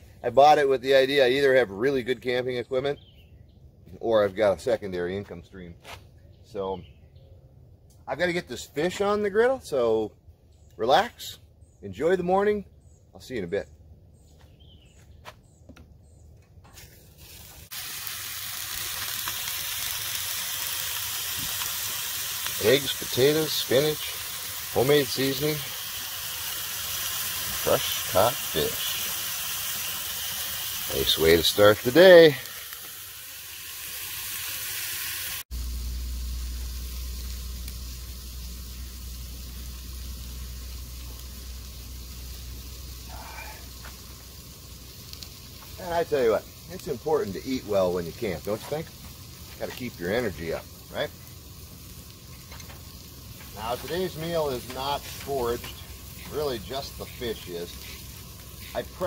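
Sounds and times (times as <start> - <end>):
faint bird chirps: 2.6 - 3.7, 12.6 - 16.5
food sizzling on a griddle: 16.8 - 59.0
steady low rumble: 35.5 - 45.8.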